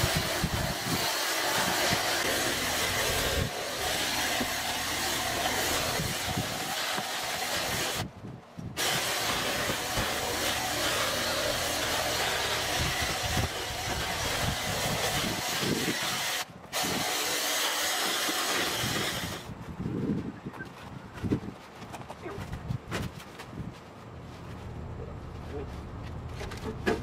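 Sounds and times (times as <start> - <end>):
lawn equipment rushing hiss: 0.0 - 8.1, 8.8 - 19.5.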